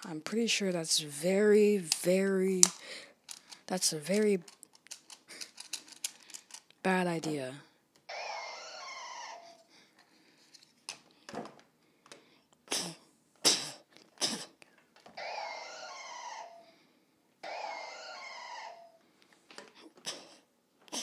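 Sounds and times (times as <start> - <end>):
electronic creature cry: 8.1 - 9.7, 15.2 - 16.8, 17.4 - 19.0.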